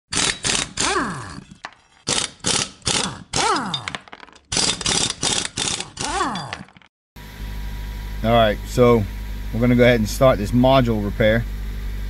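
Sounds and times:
sharp mechanical hits: 0.1 - 1.0.

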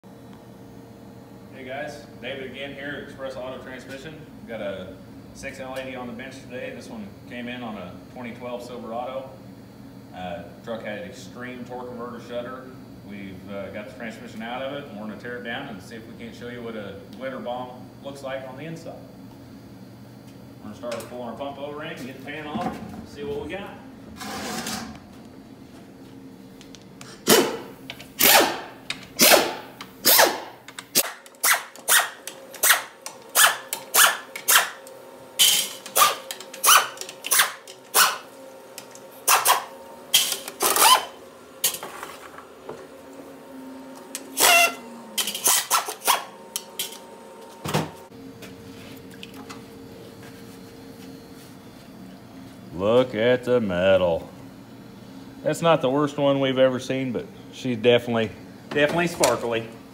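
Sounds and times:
air ratchet bursts: 35.4 - 38.2.

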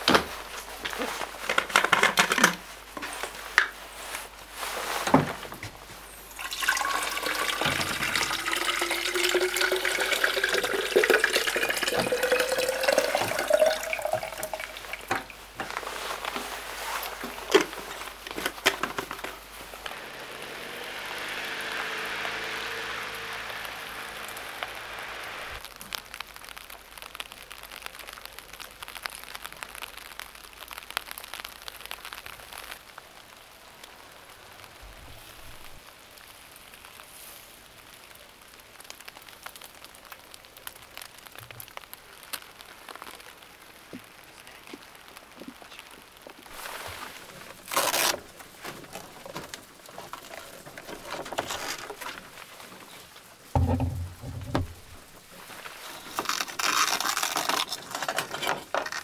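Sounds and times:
soft steady hiss: 0.0 - 59.0
water filling bottle: 6.4 - 15.4, 53.6 - 54.9
handling clicks and knocks: 53.6 - 54.9.

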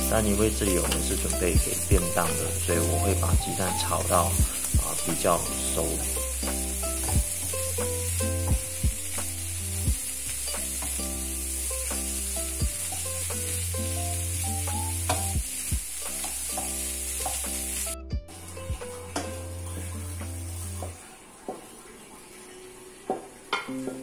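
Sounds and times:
food sizzling in a wok: 0.0 - 24.0.

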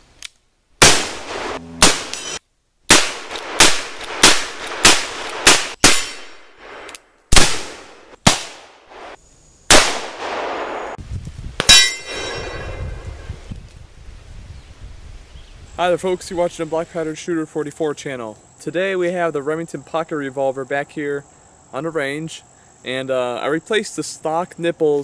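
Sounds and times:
metallic ring: 2.1 - 2.4, 11.7 - 13.3.

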